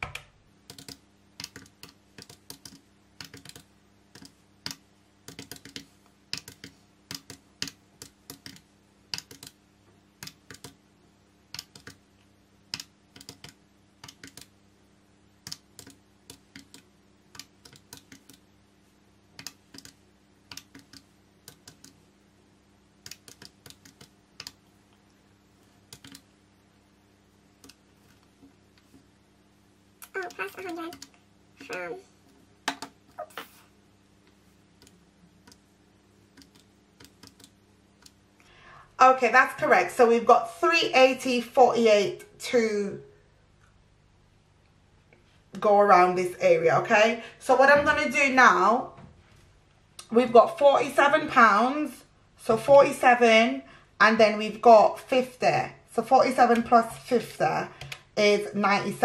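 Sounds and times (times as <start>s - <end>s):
calculator keys clicking: 0.0s - 9.6s, 10.2s - 10.8s, 11.6s - 12.0s, 12.7s - 14.5s, 17.4s - 18.4s, 25.9s - 26.2s
faint steady hum: 0.0s - 59.0s.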